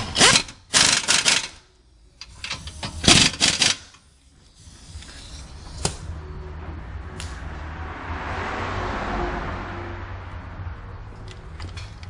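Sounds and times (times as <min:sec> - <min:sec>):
ratchet wrench clicking: 0:00.0 - 0:05.9.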